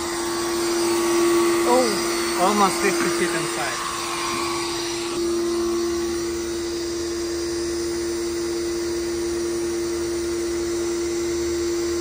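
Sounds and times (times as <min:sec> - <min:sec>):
pressure washer humming: 0:00.0 - 0:08.7.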